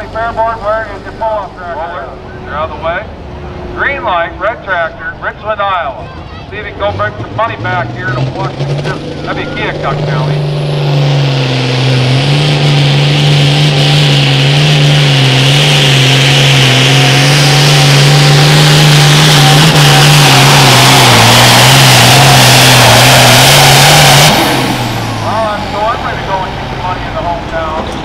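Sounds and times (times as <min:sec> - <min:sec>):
diesel tractor engine under load: 0:00.0 - 0:28.0.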